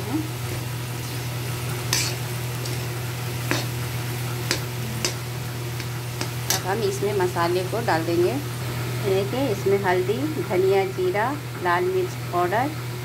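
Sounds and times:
potatoes sizzling in oil: 0:00.0 - 0:13.0
spatula scraping a pan: 0:00.4 - 0:06.7.

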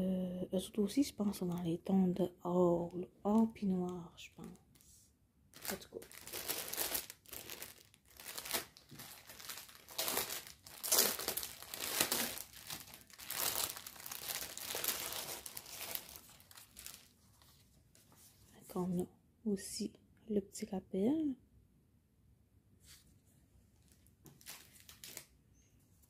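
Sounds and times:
plastic packaging crinkling: 0:05.5 - 0:17.6, 0:23.9 - 0:25.4.

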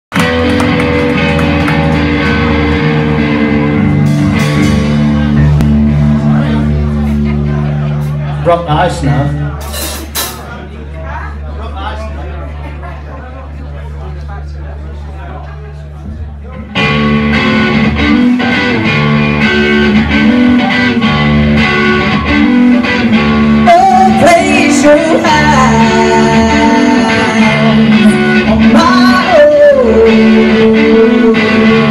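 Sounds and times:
drum kit: 0:00.1 - 0:08.3, 0:16.6 - 0:31.9
electric guitar: 0:00.1 - 0:10.3, 0:16.0 - 0:31.9
electric bass: 0:00.1 - 0:11.8, 0:15.8 - 0:31.9
woman singing: 0:23.6 - 0:31.9.

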